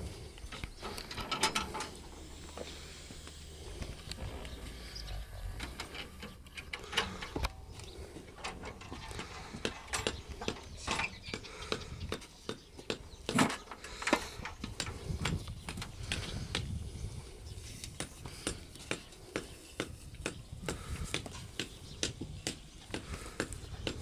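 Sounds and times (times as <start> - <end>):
cart harness clicks and knocks: 0.8 - 2.0.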